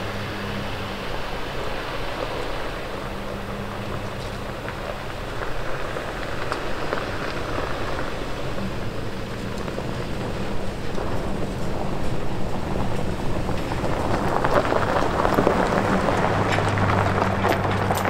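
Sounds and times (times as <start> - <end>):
pickup engine running low: 0.0 - 18.0
tyres crackling on gravel: 0.0 - 18.0.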